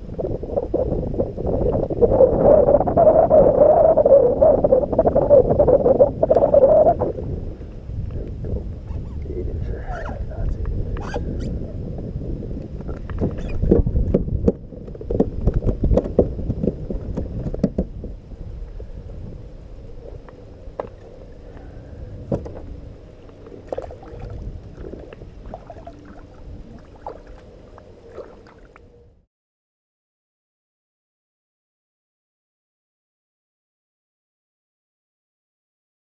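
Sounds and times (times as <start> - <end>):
knocks and clicks on boat: 12.8 - 18.0, 22.3 - 22.7
water sloshing against kayak hull: 20.2 - 28.9.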